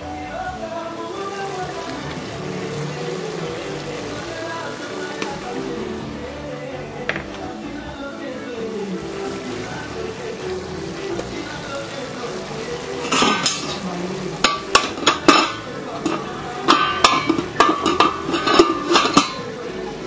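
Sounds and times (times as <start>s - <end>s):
metal utensils clinking on a pot: 12.9s - 19.6s.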